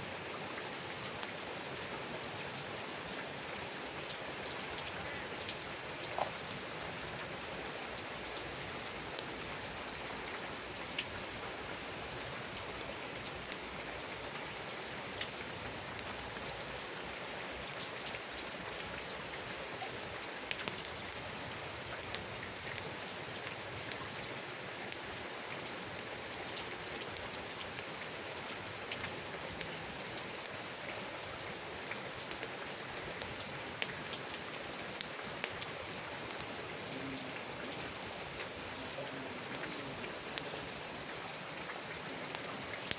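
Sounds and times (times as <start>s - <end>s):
rain falling: 0.0s - 42.9s
campfire crackling and popping: 1.0s - 1.4s, 2.4s - 7.4s, 12.4s - 14.3s, 15.1s - 16.4s, 17.6s - 25.1s, 25.8s - 28.0s, 28.8s - 30.6s, 31.6s - 36.6s, 41.8s - 42.9s.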